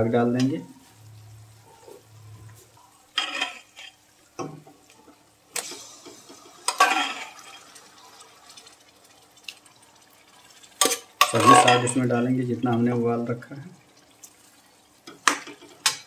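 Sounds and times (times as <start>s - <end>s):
ladle scraping metal pan: 3.2s - 4.0s.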